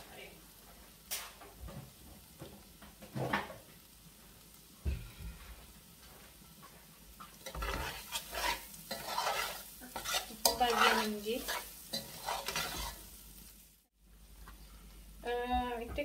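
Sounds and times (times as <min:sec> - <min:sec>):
metal spoon scraping a metal pot: 0:07.4 - 0:13.1.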